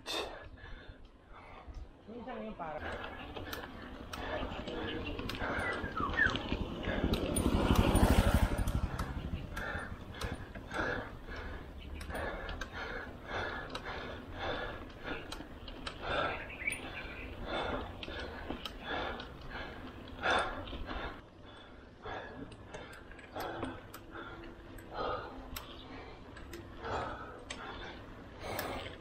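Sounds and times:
cyclist heavy breathing: 0:00.0 - 0:29.0
small motorcycle passing: 0:02.8 - 0:21.2.

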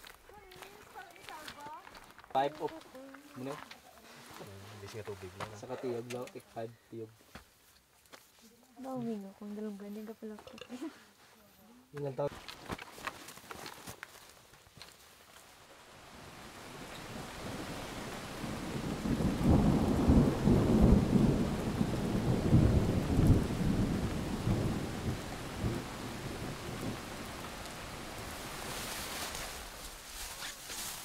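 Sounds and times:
heavy rain pouring: 0:15.6 - 0:30.0
rolling thunder rumble: 0:17.3 - 0:27.5.

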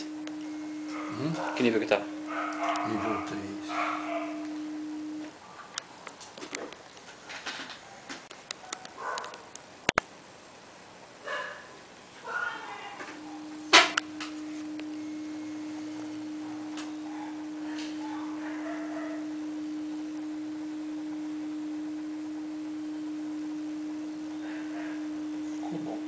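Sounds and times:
low steady test tone: 0:00.0 - 0:05.3, 0:13.0 - 0:26.0.

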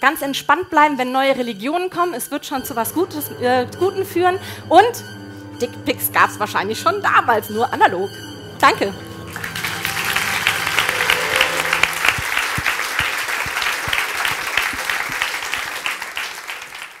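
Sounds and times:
audience applauding: 0:09.2 - 0:17.0.

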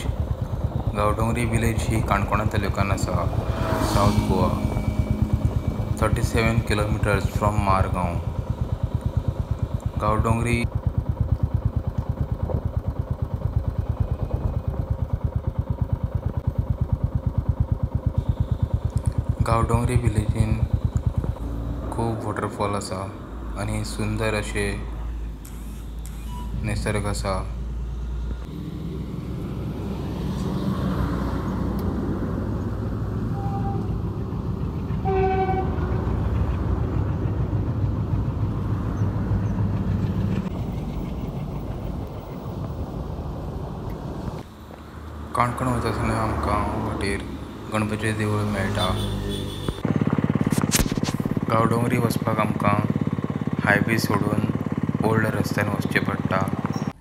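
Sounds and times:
motorcycle engine running: 0:00.0 - 0:57.0
vehicle rumbling on road: 0:00.0 - 0:57.0
vehicle horn honking: 0:03.0 - 0:07.0, 0:33.3 - 0:34.2, 0:35.0 - 0:36.2, 0:48.6 - 0:49.8.

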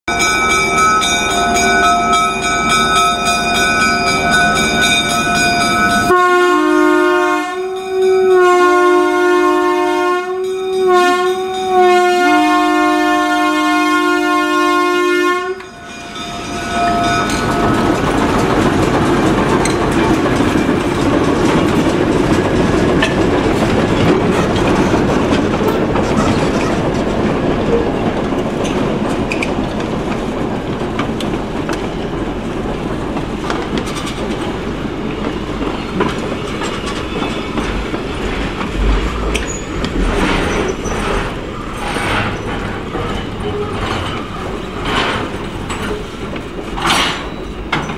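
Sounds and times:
train horn: 0:06.0 - 0:16.0
wheels clacking over rail joints: 0:16.8 - 0:47.9
locomotive engine rumble: 0:34.5 - 0:46.8.

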